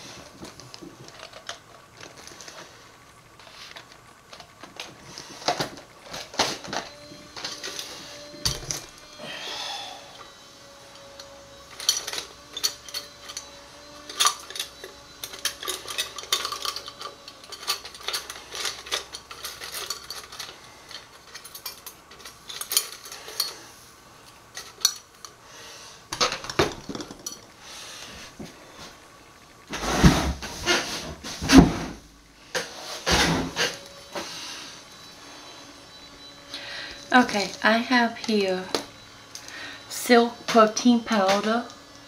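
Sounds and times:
utensils and containers clinking: 11.7 - 23.7, 24.5 - 25.4, 26.2 - 27.5.

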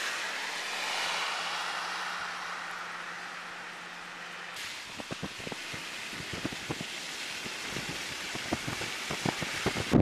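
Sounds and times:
wind buffeting microphone: 4.8 - 10.0.

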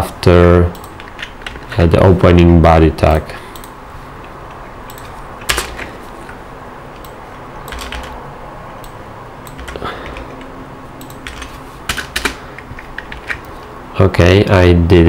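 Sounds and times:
low background noise: 0.0 - 15.0
keyboard and mouse clicks: 0.7 - 1.7, 3.6 - 8.2, 8.8 - 13.6.

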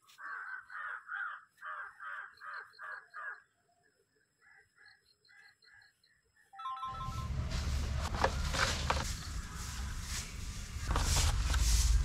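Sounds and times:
crow cawing: 0.2 - 3.5.

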